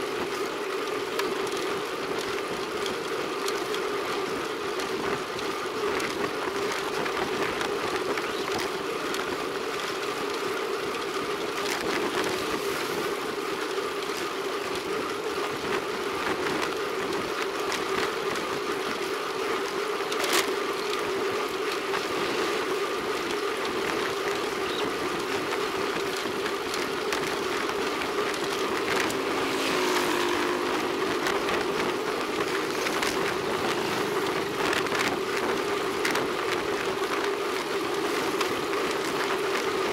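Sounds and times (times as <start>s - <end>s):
bike tyres rolling on concrete: 0.0s - 39.9s
wind rush on microphone: 11.8s - 13.4s, 23.6s - 39.9s
motorcycle passing: 26.9s - 36.2s.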